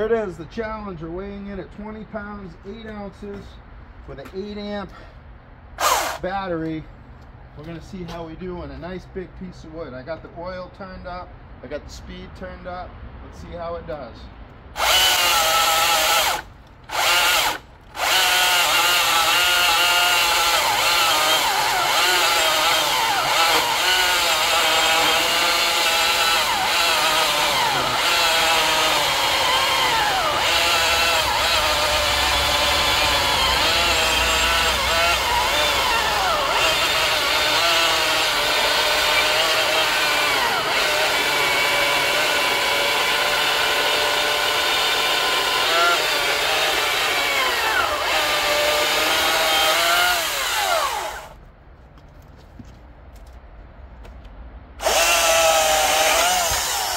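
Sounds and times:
electric chainsaw cutting log: 5.8s - 6.2s, 14.8s - 51.4s, 54.8s - 56.9s.

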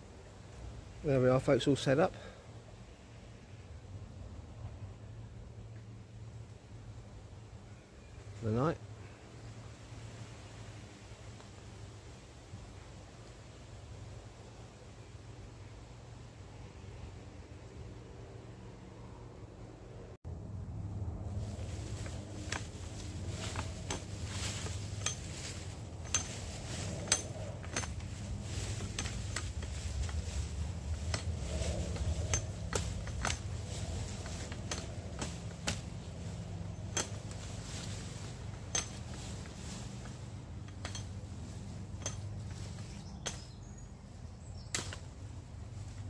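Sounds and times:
low steady rumble: 0.0s - 46.0s
twigs snapping by hand: 21.8s - 43.6s, 44.6s - 45.3s.

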